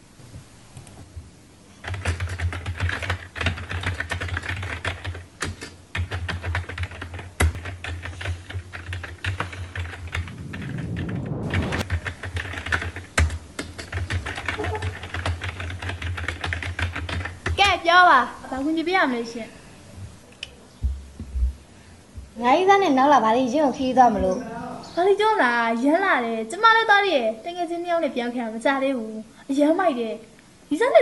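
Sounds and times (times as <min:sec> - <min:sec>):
fast keyboard typing: 0:01.8 - 0:17.7.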